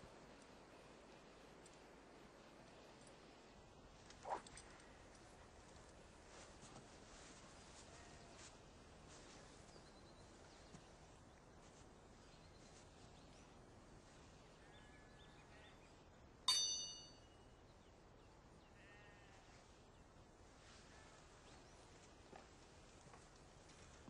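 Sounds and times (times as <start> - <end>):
steel sword blades clashing: 16.5 - 17.2
faint animal calls: 18.8 - 19.7.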